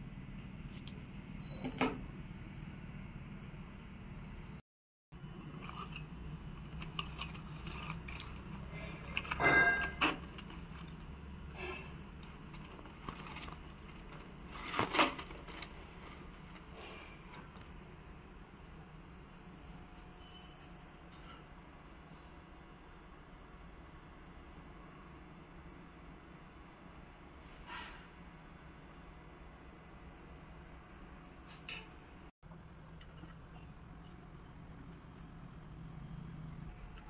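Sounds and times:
insect trill: 0.0s - 4.6s, 5.2s - 37.0s
rustles and knocks: 5.2s - 18.1s.

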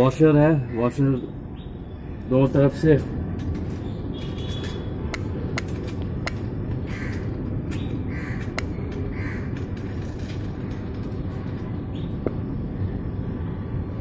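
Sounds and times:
crow cawing: 6.8s - 7.4s, 8.1s - 9.6s.

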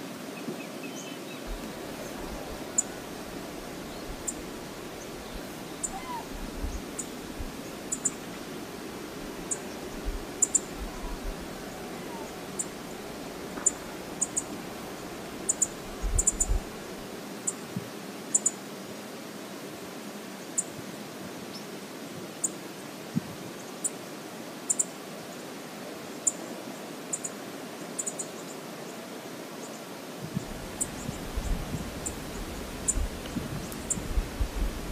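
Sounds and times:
flowing river water: 0.0s - 16.0s.

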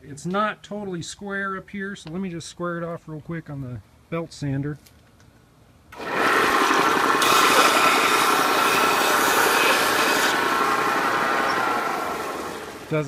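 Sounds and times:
belt sander running: 6.0s - 13.0s
wood rasping on sanding belt: 6.5s - 12.6s.

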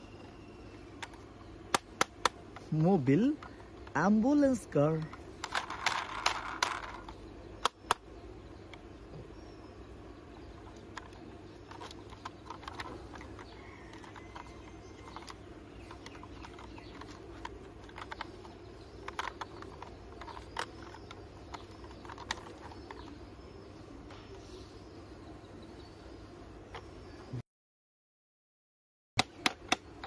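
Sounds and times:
steady low hum: 0.0s - 27.4s
plastic toy clicks and taps: 1.0s - 2.7s, 5.1s - 8.0s, 11.0s - 23.2s, 29.2s - 30.0s.

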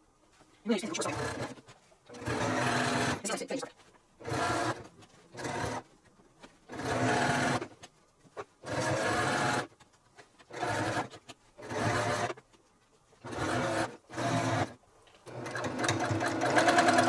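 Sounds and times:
sewing machine stitching: 0.8s - 3.4s, 4.2s - 5.9s, 6.7s - 7.8s, 8.6s - 9.7s, 10.4s - 12.4s, 13.2s - 17.0s.

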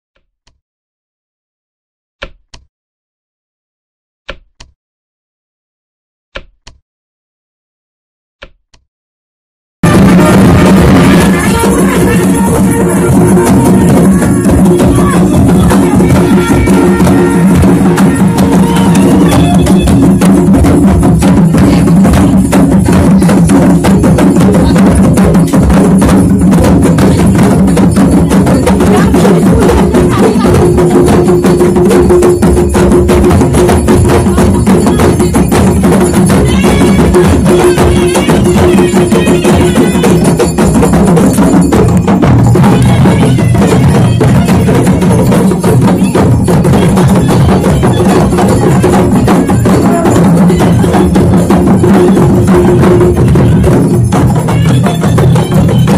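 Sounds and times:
fast drumming: 9.8s - 55.9s
band holding notes: 9.9s - 23.0s.

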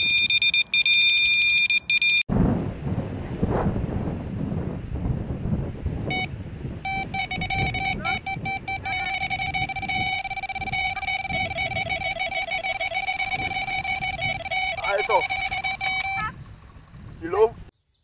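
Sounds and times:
electronic bite alarm beeping: 0.0s - 2.3s, 6.1s - 16.4s.

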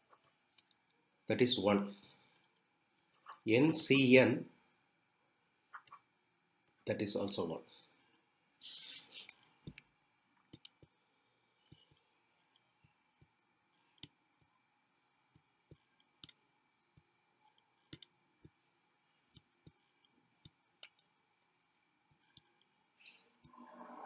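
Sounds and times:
faint irregular clicks: 0.1s - 1.0s, 8.6s - 14.6s, 15.3s - 23.6s.

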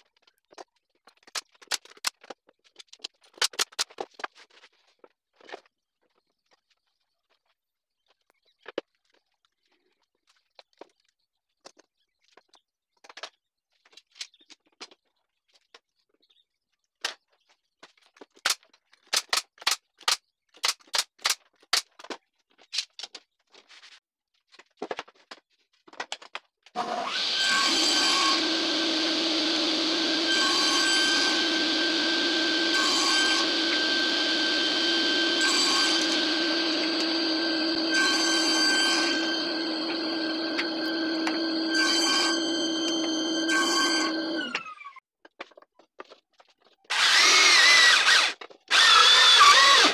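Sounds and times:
table saw cutting boards: 26.8s - 44.8s, 46.9s - 49.9s
table saw running: 26.8s - 44.8s, 46.9s - 49.9s.

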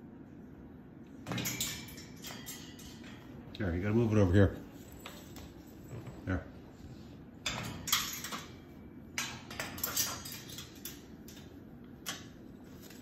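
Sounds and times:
bird beak and claws clattering on wire cage: 7.4s - 8.6s, 9.2s - 13.0s.

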